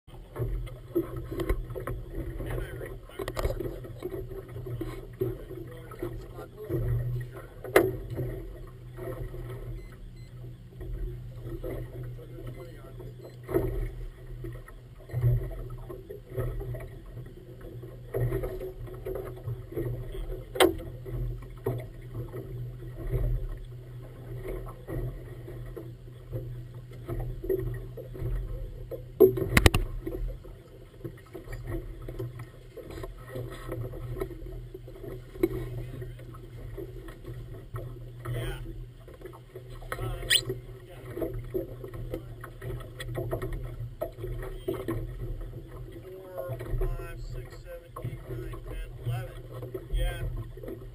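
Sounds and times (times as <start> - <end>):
water lapping at hull: 0.1 - 50.9
sharp knocks: 29.4 - 29.9.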